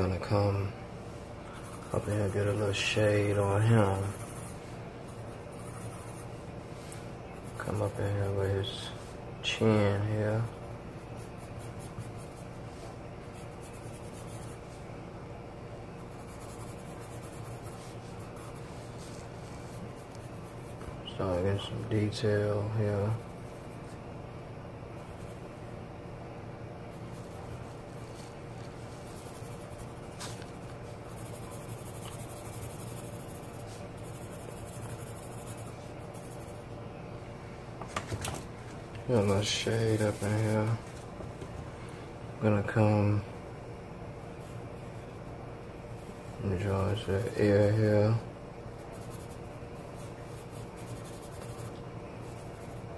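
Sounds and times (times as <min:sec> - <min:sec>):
faint low hum: 0:00.0 - 0:52.9
pencil scratching on paper: 0:01.5 - 0:09.0, 0:10.4 - 0:14.8, 0:16.0 - 0:22.3, 0:26.9 - 0:36.7, 0:39.1 - 0:41.1, 0:46.4 - 0:48.0, 0:48.8 - 0:52.9.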